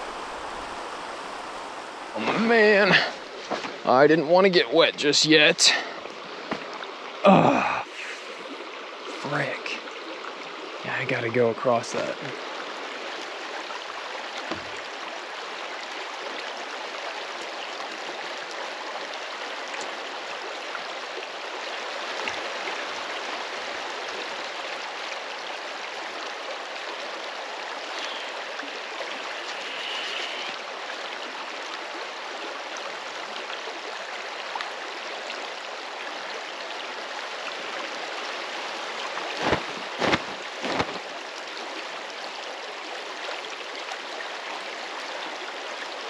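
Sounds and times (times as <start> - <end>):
shallow river rushing: 0.0 - 10.4, 11.9 - 46.0.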